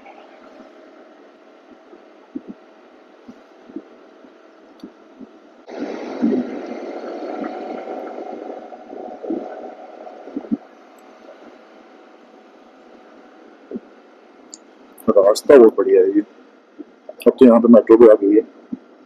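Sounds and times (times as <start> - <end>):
muffled wind noise: 0.0 - 14.2
wind buffeting thumps: 1.7 - 12.4
rush of noise: 5.7 - 13.9.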